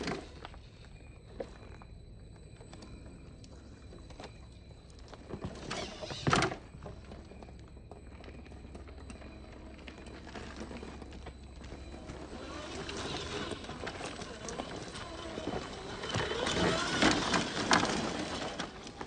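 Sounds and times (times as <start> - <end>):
toy truck scrabbling over rock: 5.2 - 7.2, 8.4 - 19.0.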